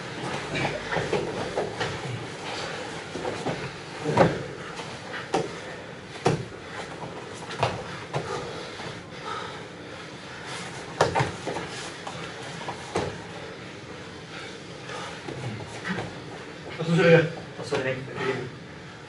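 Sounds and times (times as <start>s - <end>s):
bodies thudding on foam mats: 3.1s - 4.6s, 5.2s - 8.5s, 10.9s - 13.3s.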